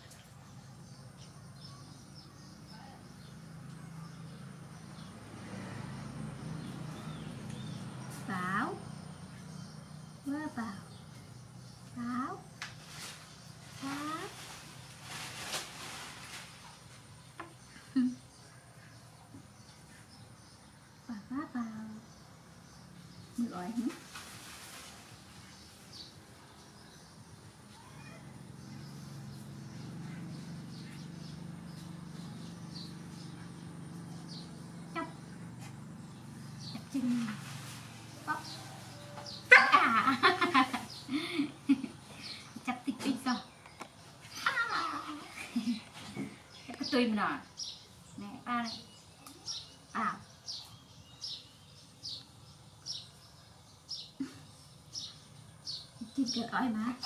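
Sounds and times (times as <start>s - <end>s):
bird chirping: 0.4s - 15.2s, 25.1s - 57.0s.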